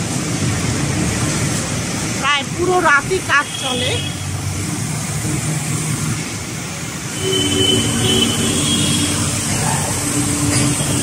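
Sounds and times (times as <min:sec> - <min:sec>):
road traffic noise: 0:00.0 - 0:11.0
truck engine running: 0:04.3 - 0:11.0.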